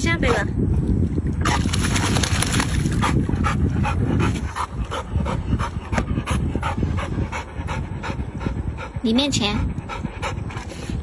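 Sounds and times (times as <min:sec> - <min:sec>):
dog panting: 0:03.0 - 0:11.0.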